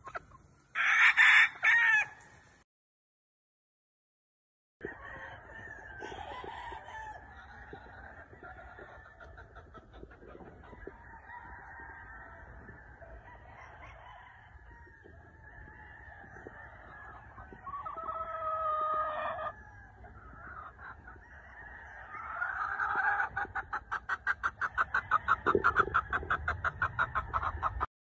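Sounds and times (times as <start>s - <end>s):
rooster crowing: 0.8s - 2.2s, 4.8s - 7.4s, 10.8s - 20.0s.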